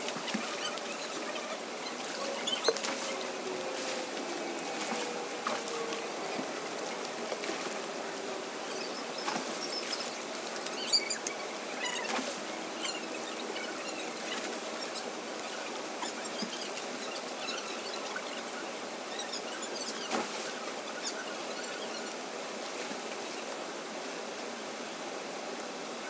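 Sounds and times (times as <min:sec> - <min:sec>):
water splashing and lapping: 0:00.0 - 0:16.9
rush of flowing water: 0:00.0 - 0:26.0.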